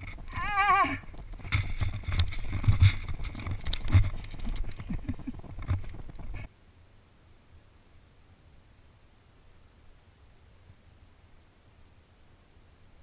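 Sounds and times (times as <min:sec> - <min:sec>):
snowboard scraping over snow: 0:00.0 - 0:06.5.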